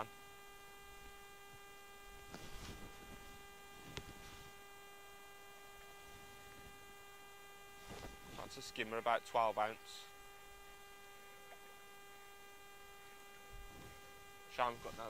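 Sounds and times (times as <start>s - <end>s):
faint electrical hum: 0.0s - 15.0s
soft rustle: 0.9s - 4.8s, 5.7s - 6.9s, 7.6s - 8.6s, 13.5s - 15.0s.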